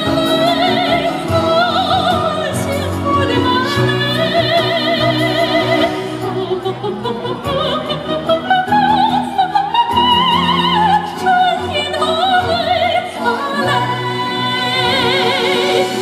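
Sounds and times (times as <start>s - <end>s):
backing music: 0.0s - 16.0s
woman singing with vibrato: 0.0s - 16.0s.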